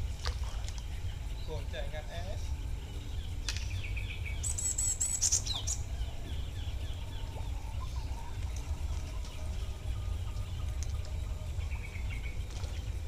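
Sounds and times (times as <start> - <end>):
steady low rumble: 0.0 - 13.0
bird chattering trill: 3.3 - 5.9.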